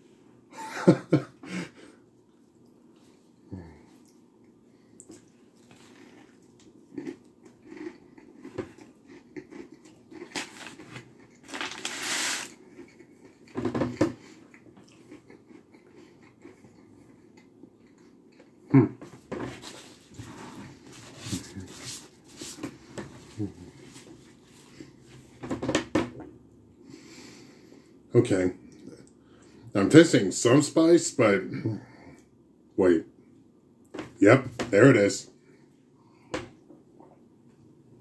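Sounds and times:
person chewing crunchy food: 5.0 - 18.6
breaths: 26.8 - 28.0, 29.2 - 29.7.

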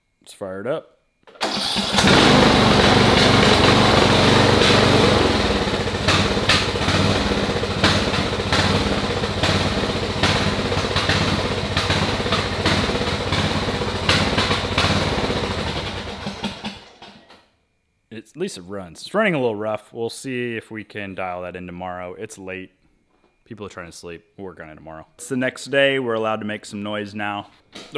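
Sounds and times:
riding mower engine running rough: 1.4 - 17.3.

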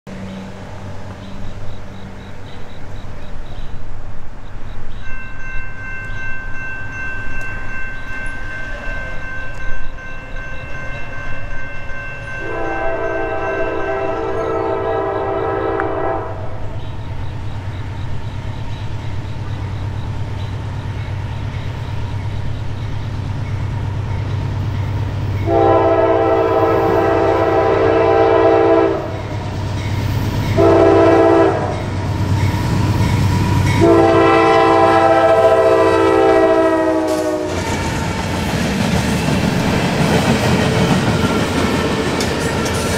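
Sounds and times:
locomotive horn blasts: 12.4 - 17.2, 25.4 - 29.5, 30.5 - 32.0, 33.4 - 37.8.

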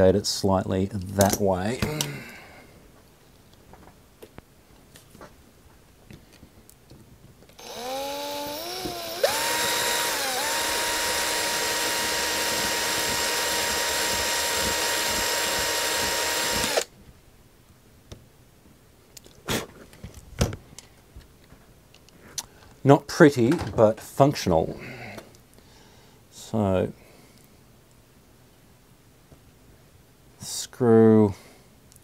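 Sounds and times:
cordless drill whining: 7.6 - 16.9.

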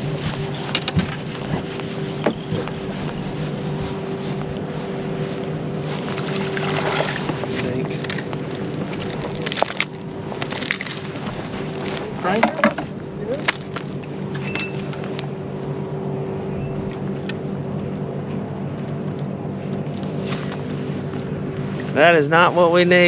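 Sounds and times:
boat motor humming: 0.0 - 23.0
fishing gear clicking and knocking: 6.9 - 15.3.

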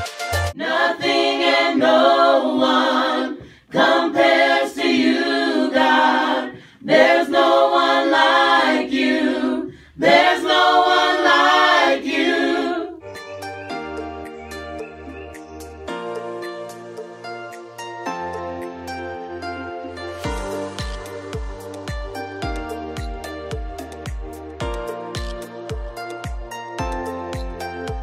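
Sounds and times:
voices singing unaccompanied: 0.6 - 13.0.

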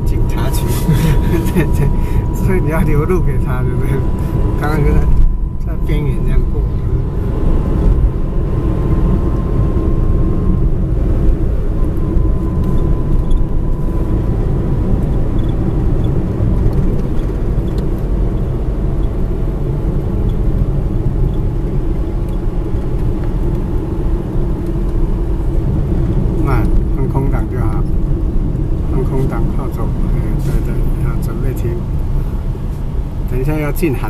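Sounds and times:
car engine and tyres rumbling: 0.0 - 34.0.

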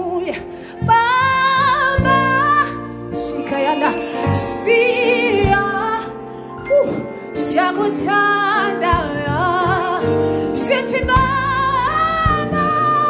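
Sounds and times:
woman singing gospel song: 0.0 - 13.0
singer breathing: 0.4 - 0.9, 3.9 - 4.4, 6.2 - 7.4, 10.1 - 10.6.

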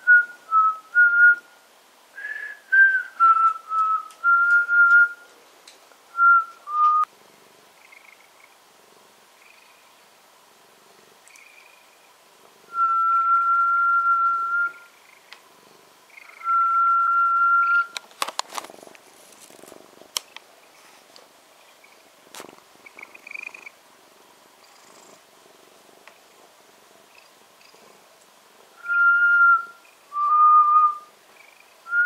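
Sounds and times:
person whistling long notes: 2.2 - 5.2, 6.2 - 7.1, 12.7 - 14.8, 16.4 - 18.0, 28.8 - 31.1
cat purring: 6.7 - 32.0.

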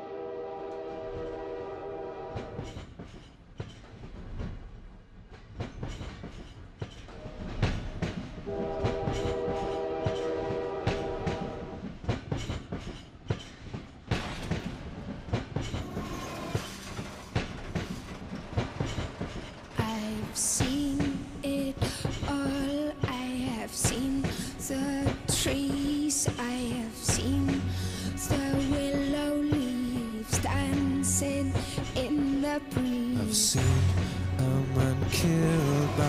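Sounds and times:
train horn: 0.0 - 2.7, 8.4 - 11.8, 22.4 - 36.0
train wheels clattering: 2.3 - 36.0.

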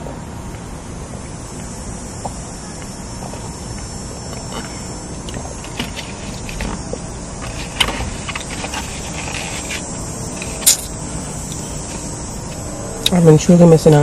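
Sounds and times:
steady hum: 0.0 - 14.0.

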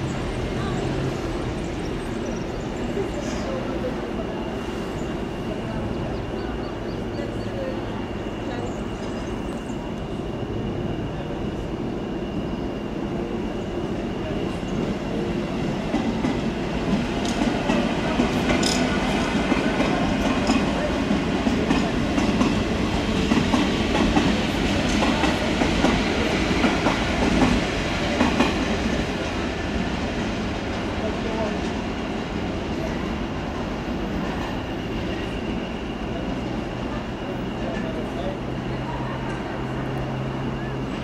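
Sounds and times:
diesel locomotive engine running: 0.0 - 41.0
train wheels clattering over rail joints: 15.9 - 28.8.

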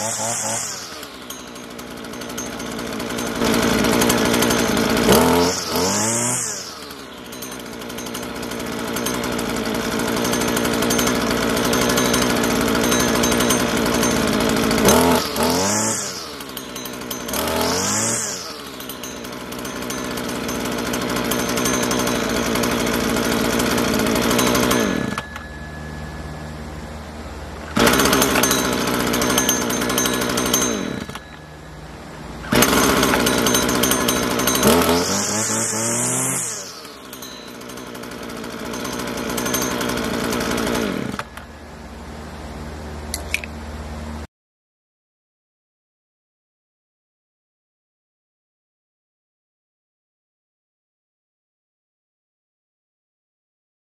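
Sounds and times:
string trimmer engine revving: 0.0 - 41.6.

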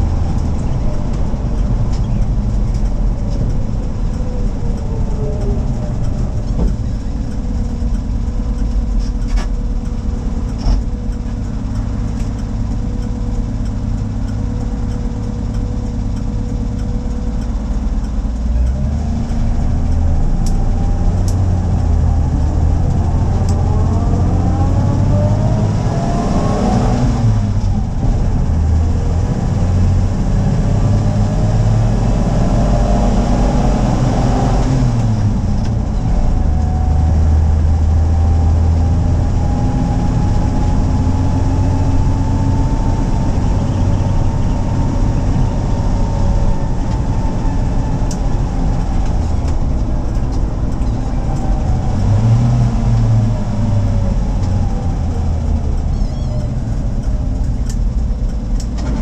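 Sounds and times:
car engine while driving: 0.0 - 59.0.

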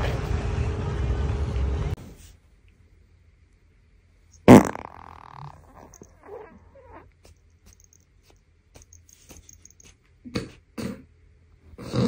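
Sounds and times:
loud fart: 4.4 - 6.3, 10.3 - 11.1.

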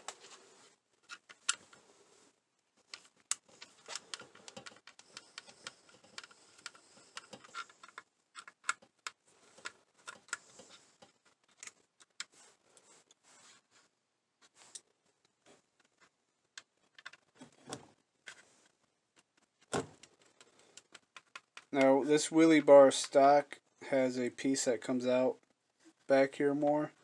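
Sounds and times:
clicks and taps of small parts: 19.2 - 21.8.

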